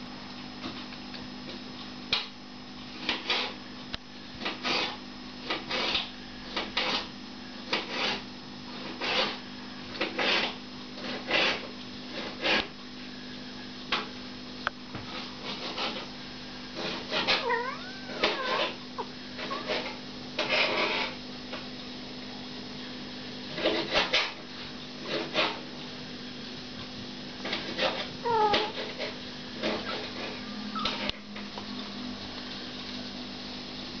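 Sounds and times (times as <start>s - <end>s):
kitten mewing: 17.2s - 19.8s, 28.2s - 28.8s.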